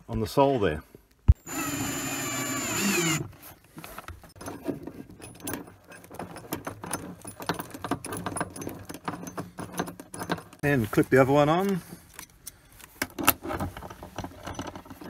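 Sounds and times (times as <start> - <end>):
steady whirring: 1.4 - 3.3.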